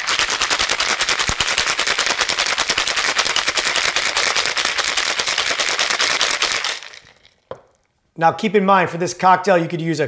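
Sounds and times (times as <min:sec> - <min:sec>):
ice rattling in cocktail shaker: 0:00.0 - 0:07.5.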